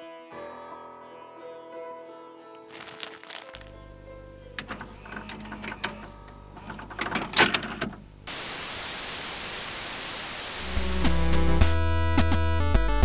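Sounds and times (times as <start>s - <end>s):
tv static hiss: 3.5s - 11.8s
vhs tape loading clicks and clunks: 3.7s - 8.3s
music with deep bass: 10.6s - 13.0s.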